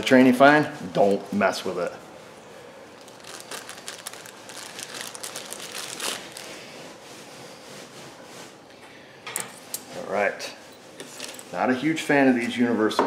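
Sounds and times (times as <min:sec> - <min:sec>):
plastic bag crinkling: 0:02.9 - 0:06.9.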